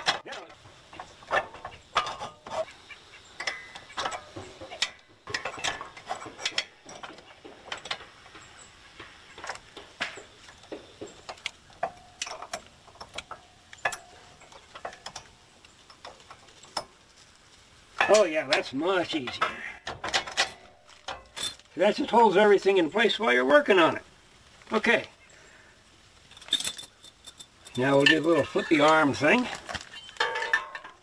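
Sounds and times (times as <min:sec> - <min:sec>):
metallic clinks and knocks: 0:26.2 - 0:29.5, 0:30.2 - 0:31.0.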